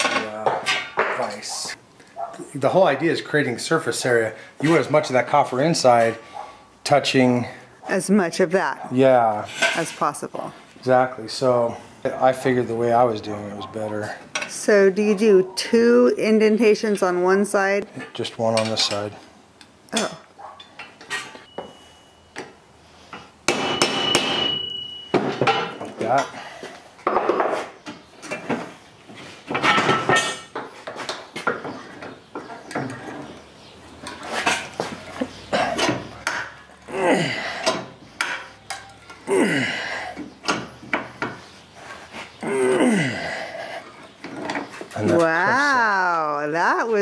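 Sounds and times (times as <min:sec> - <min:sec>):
metal knocks and clanks: 0:29.5 - 0:33.4.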